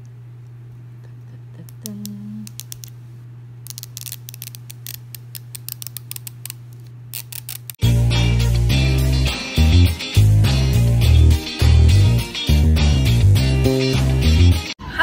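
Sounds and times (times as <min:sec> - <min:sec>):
steady low hum: 0:00.0 - 0:07.8
wrapper crackling as torn open: 0:03.7 - 0:07.8.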